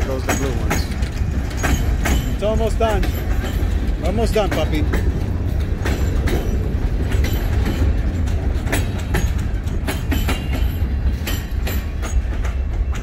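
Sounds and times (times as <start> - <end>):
freight train rumble: 0.0 - 13.0
wheels clanking over rail joints: 0.0 - 13.0.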